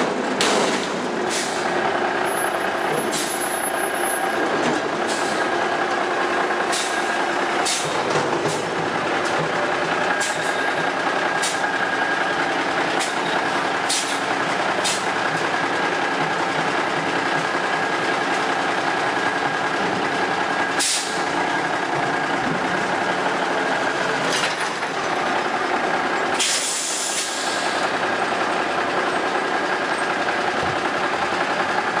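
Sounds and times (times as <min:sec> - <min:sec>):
metallic clanks and bangs: 0:00.0 - 0:01.6
truck engine running: 0:00.0 - 0:32.0
short air hiss: 0:20.8 - 0:21.2, 0:26.4 - 0:27.7.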